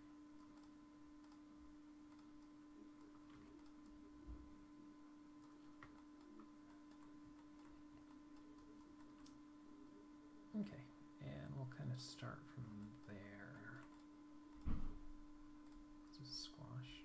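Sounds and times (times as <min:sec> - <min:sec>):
faint steady hum: 0:00.0 - 0:17.0
computer mouse clicks: 0:00.4 - 0:01.4, 0:02.1 - 0:04.0, 0:05.4 - 0:09.4, 0:13.7 - 0:14.6.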